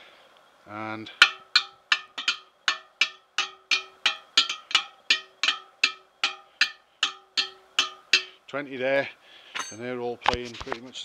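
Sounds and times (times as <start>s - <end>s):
wheel spokes ringing when struck: 1.1s - 8.4s.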